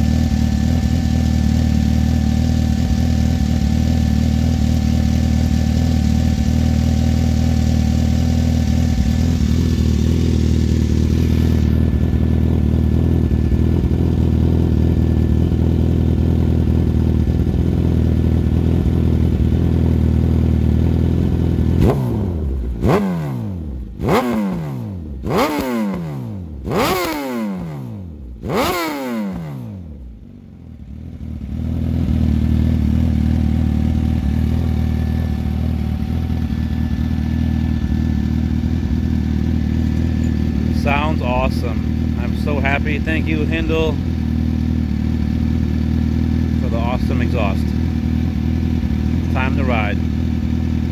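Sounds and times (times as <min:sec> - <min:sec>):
motorcycle engine idling: 0:00.0 - 0:50.9
engine revs blipped: 0:21.8 - 0:29.9.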